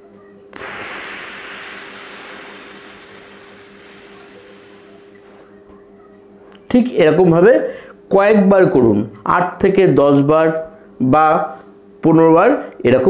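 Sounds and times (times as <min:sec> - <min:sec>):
man exhaling slowly: 0:00.6 - 0:05.4.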